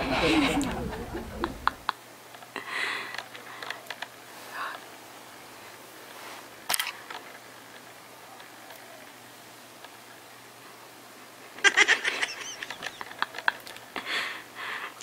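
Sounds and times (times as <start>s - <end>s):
soft breathy sounds: 0.0s - 1.8s, 14.0s - 15.0s.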